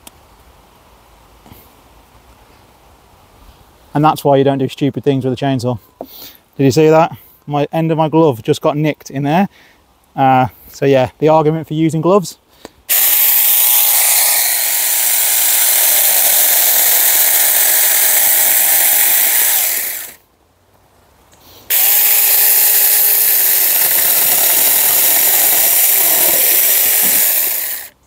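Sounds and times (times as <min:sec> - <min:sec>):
electric chainsaw cutting wood: 0:12.9 - 0:20.2, 0:21.7 - 0:28.0.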